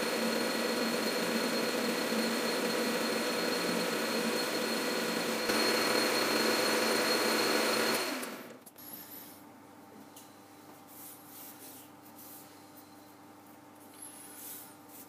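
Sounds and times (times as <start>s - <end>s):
metal lathe cutting steel: 0.0s - 8.5s.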